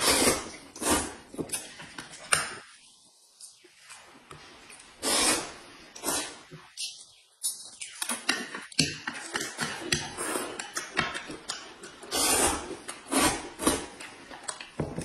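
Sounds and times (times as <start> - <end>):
noodles slurped: 0.0 - 1.7, 9.1 - 14.8
wet chewing clicks and smacks: 7.4 - 12.0.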